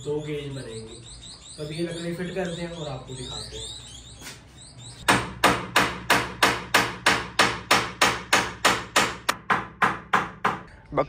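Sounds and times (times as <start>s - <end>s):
hammer driving nails into wood: 5.1s - 10.6s.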